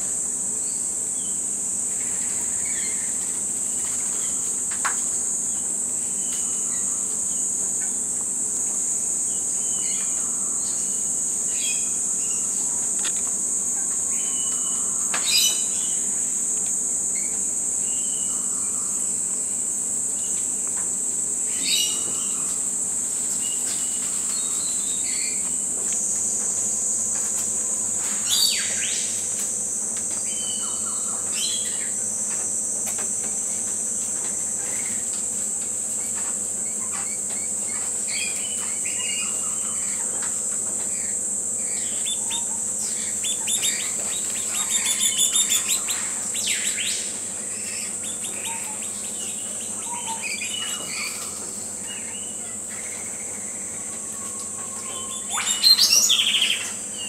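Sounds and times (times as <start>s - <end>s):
high-pitched insect drone: 0.0s - 57.0s
rapidly repeated bird notes: 0.5s - 57.0s
birds chirping and calling: 36.1s - 57.0s.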